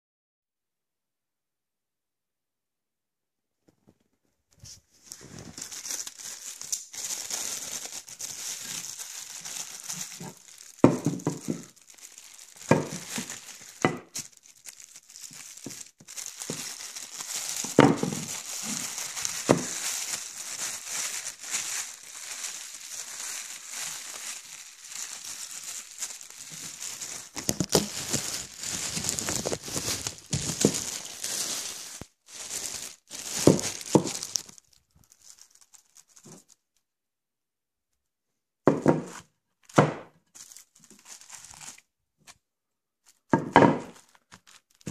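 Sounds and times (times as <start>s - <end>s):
packaging crinkling: 4.6s - 36.7s, 39.6s - 41.8s, 43.8s - 44.9s.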